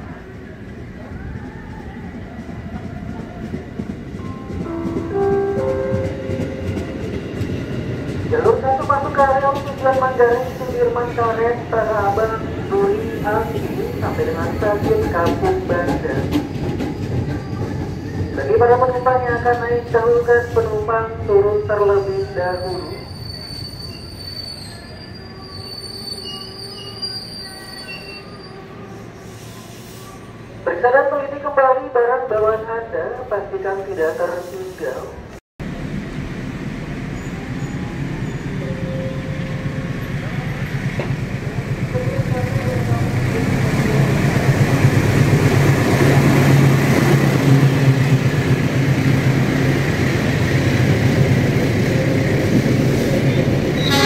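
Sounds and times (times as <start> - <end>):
train rumble: 0.0 - 22.1, 34.1 - 54.0
train brakes squealing: 10.2 - 11.1, 21.9 - 30.5, 37.1 - 40.2, 53.0 - 54.0.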